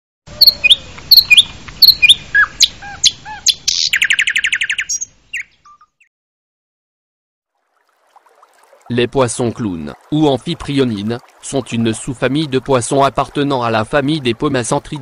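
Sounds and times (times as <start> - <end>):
bird trill: 0.4 - 6.1
birds chirping: 0.4 - 6.1.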